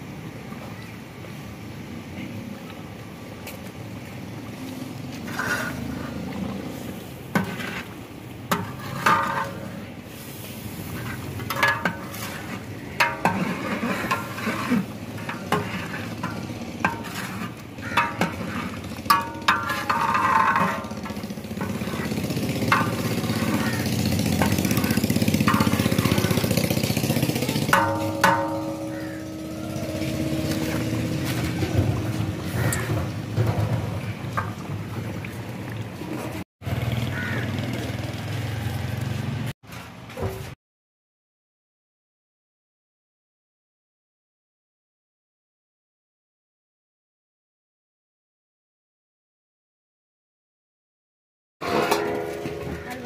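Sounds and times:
metal ladle knocking and scraping pot: 7.3 - 9.8, 10.9 - 34.7, 51.6 - 53.0.

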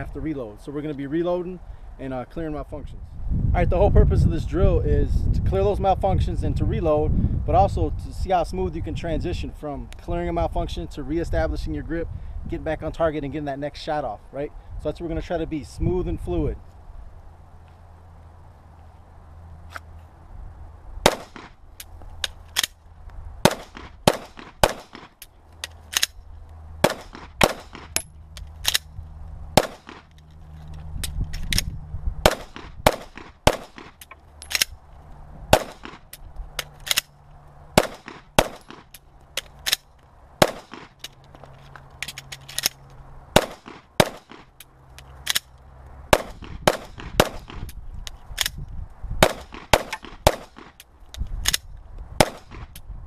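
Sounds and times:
pistol shots: 21.0 - 21.6, 23.4 - 25.2, 26.8 - 28.0, 29.6 - 30.1, 32.2 - 34.0, 35.5 - 36.0, 37.8 - 38.9, 40.4 - 41.0, 43.4 - 44.5, 46.1 - 47.6, 49.2 - 50.8, 52.2 - 52.7
pistol slide racking: 24.4 - 26.2, 27.1 - 28.9, 33.8 - 34.8, 35.8 - 37.1, 38.1 - 39.9, 44.6 - 45.5.

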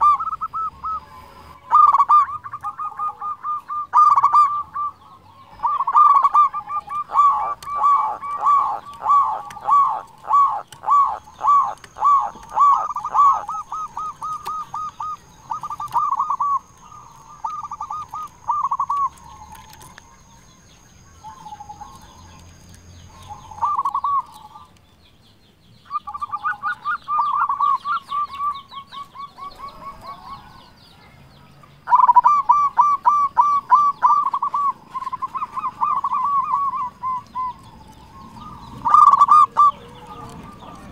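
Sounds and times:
dove cooing: 0.0 - 24.7, 25.9 - 30.8, 31.8 - 40.9.

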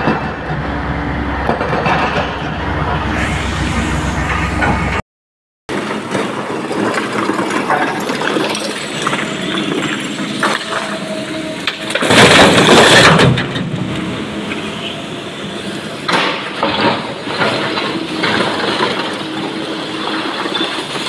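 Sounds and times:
excavator diesel engine and hydraulics: 0.0 - 5.0, 5.7 - 21.0
crash of stone into dump truck: 5.7 - 11.0, 11.6 - 14.0, 16.1 - 21.0
rock clatter: 5.8 - 10.8.

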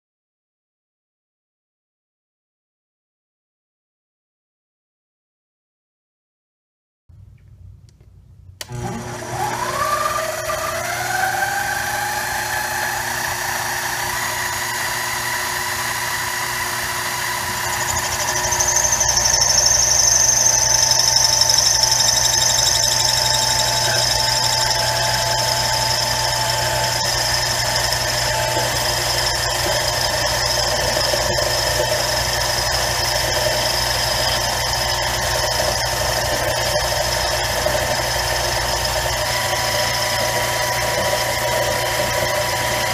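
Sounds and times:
lathe motor whining: 8.6 - 42.9
high squeal of tool cutting metal: 16.8 - 42.9.

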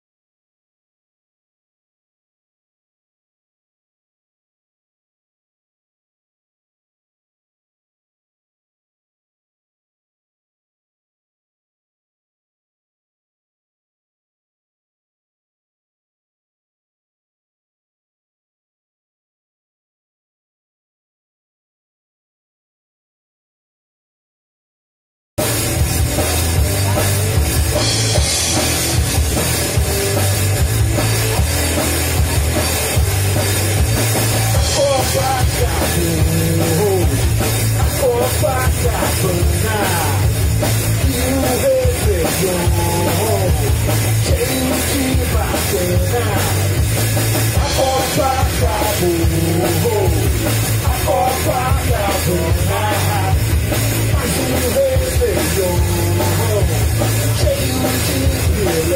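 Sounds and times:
bass guitar: 25.4 - 58.9
drum kit: 25.4 - 58.9
electric guitar: 25.4 - 58.9.

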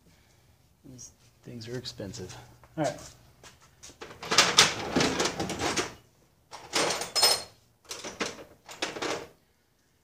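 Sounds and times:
metal tools clattering: 4.2 - 9.3.

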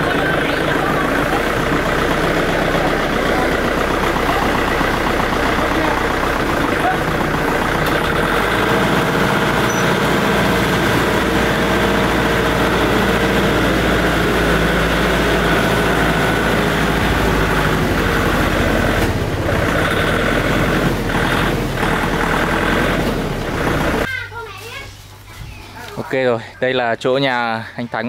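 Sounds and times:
vehicle engine running: 0.0 - 24.1
road noise: 0.0 - 28.0.

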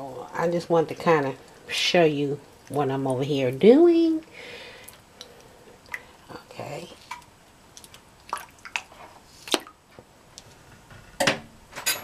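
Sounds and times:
wet squishes: 4.7 - 6.2, 6.9 - 9.8.

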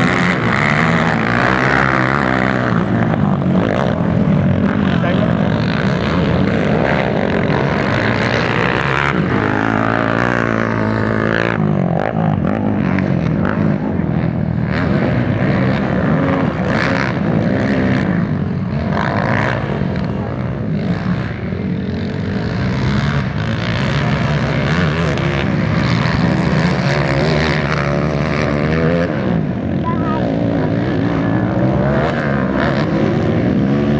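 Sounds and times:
dirt bike engines revving: 0.0 - 33.9.

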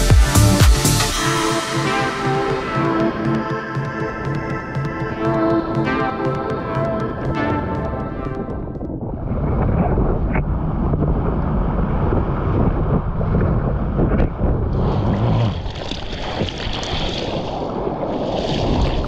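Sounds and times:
wind buffeting microphone: 7.8 - 19.0
surf water rushing and splashing: 10.5 - 19.0.

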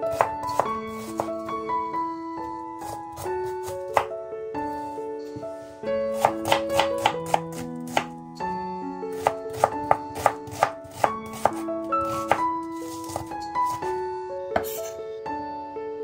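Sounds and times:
light melodic background music: 0.0 - 16.0
knife chopping on wooden board: 0.1 - 1.3, 3.1 - 4.1, 6.2 - 8.1, 9.2 - 13.8, 14.6 - 14.9.

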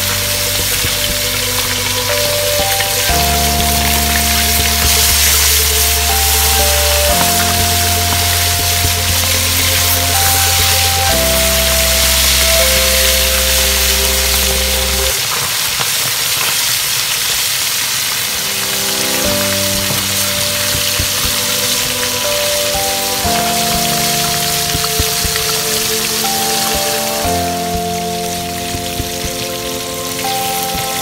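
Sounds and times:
music of held chords: 0.0 - 15.2, 18.2 - 31.0
fish deep-frying in oil: 0.0 - 31.0.

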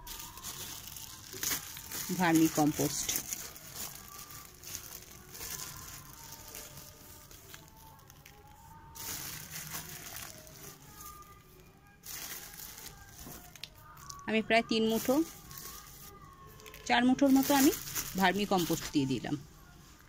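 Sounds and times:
plastic bag crinkling: 0.0 - 19.4.

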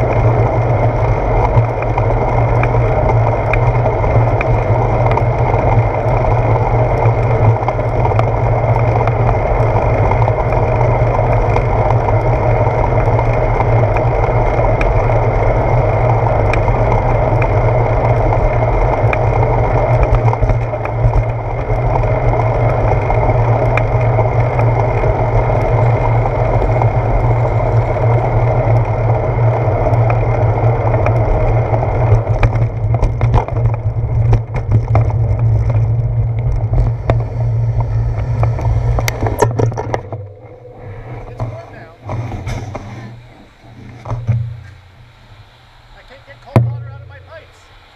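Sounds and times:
wind and road rumble: 0.0 - 47.9
bike knocks from road bumps: 46.5 - 47.2.

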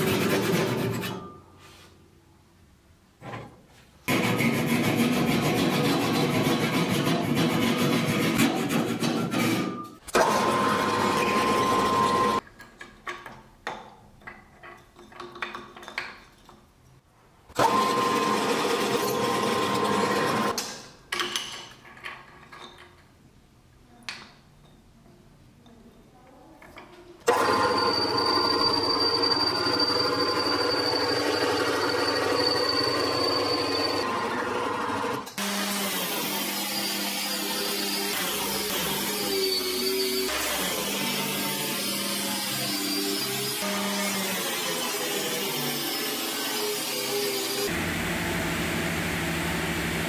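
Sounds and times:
drill press boring into wood: 17.6 - 20.5, 27.3 - 40.6
high whistle: 27.6 - 34.1, 39.3 - 40.3.

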